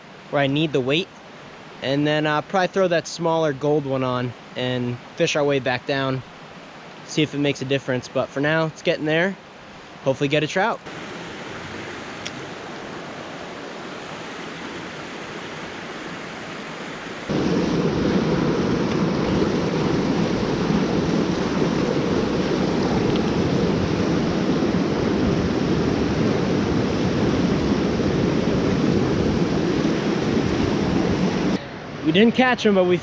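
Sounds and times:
water rushing over rocks: 10.8s - 32.9s.

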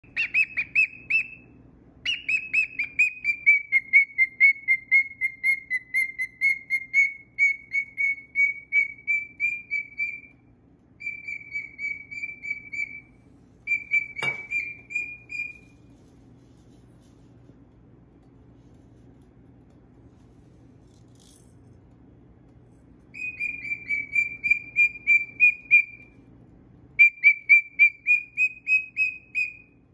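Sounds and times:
cockatiel whistled chirps: 0.0s - 15.8s, 23.1s - 26.2s, 27.0s - 29.9s.

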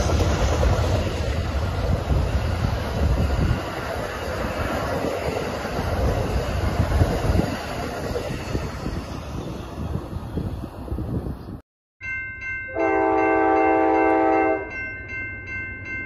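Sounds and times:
train wheels rumbling on track: 0.0s - 11.6s.

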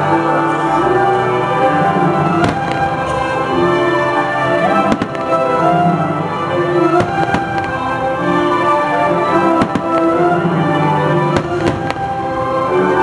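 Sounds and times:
loud show music: 0.0s - 13.0s
firework shells bursting: 2.3s - 6.0s, 6.7s - 8.7s, 9.3s - 12.5s.

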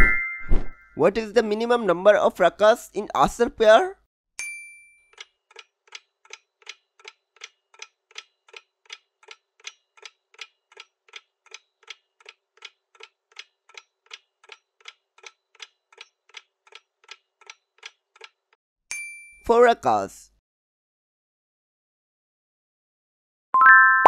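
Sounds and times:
clock-like ticking: 5.1s - 18.6s.

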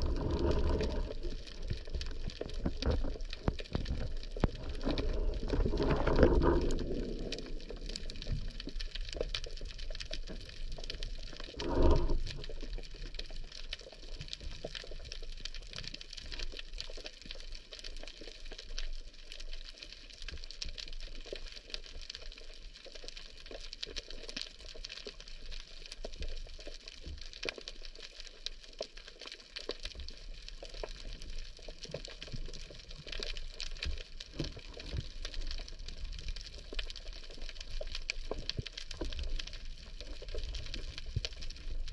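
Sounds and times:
pitched underwater sounds: 0.0s - 13.6s
underwater crackle of clicks: 0.0s - 41.9s.

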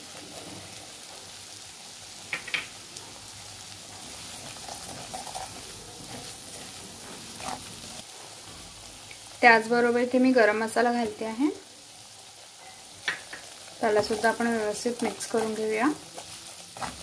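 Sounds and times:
spices sizzling in hot oil: 0.0s - 17.0s
spoon stirring in pan: 3.8s - 8.1s, 12.5s - 17.0s.

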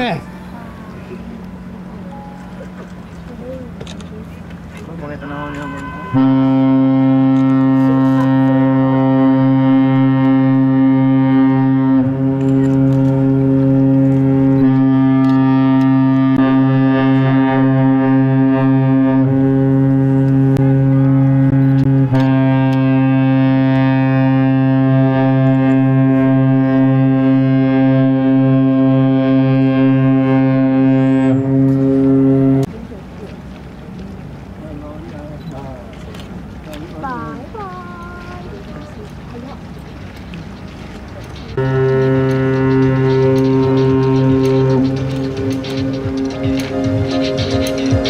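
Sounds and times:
deep ship horn blast: 4.8s - 32.7s, 41.4s - 48.0s.

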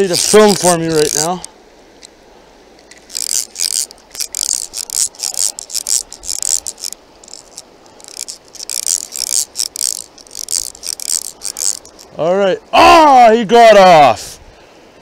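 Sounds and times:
fishing reel drag ratcheting: 0.0s - 2.1s, 2.7s - 12.1s.

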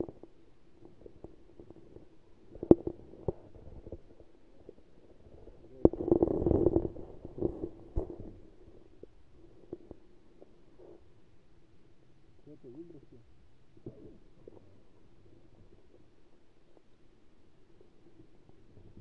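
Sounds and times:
gurgling rumble: 0.0s - 9.9s
muffled low underwater hum: 0.0s - 19.0s.

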